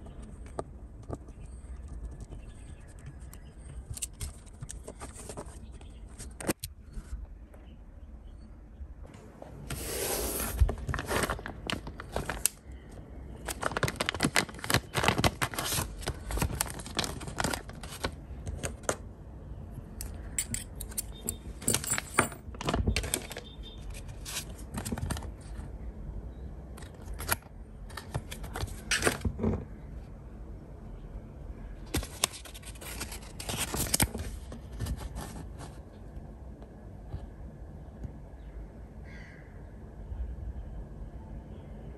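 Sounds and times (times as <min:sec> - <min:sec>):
paper cards rustling and sliding: 0:09.2 - 0:12.6, 0:13.5 - 0:19.0, 0:21.8 - 0:25.7, 0:31.9 - 0:36.0.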